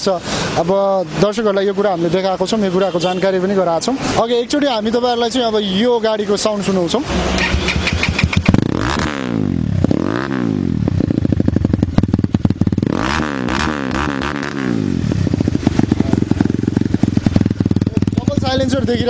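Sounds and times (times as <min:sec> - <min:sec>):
engine revving: 0:06.9 - 0:19.0
dirt bike engine idling: 0:07.4 - 0:08.9, 0:10.8 - 0:13.0, 0:14.4 - 0:19.0.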